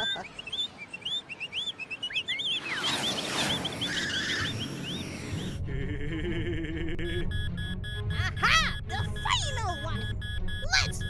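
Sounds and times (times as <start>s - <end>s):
birds chirping: 0.0s - 5.6s
music: 5.5s - 11.0s.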